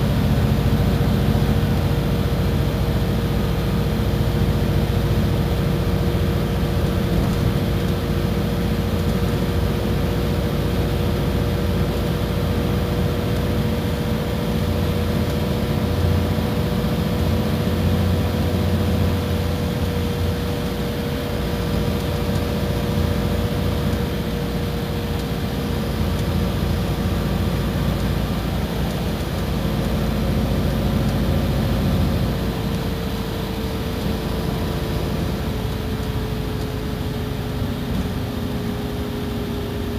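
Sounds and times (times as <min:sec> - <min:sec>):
bus engine droning: 0:00.0 - 0:39.9.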